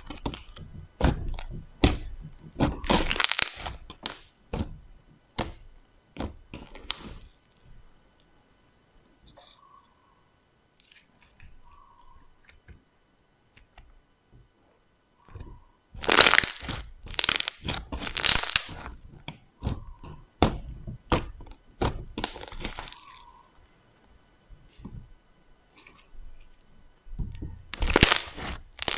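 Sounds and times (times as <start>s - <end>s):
slime crackling and popping: 0.0s - 4.8s, 5.4s - 7.6s, 15.3s - 23.4s, 27.7s - 28.9s.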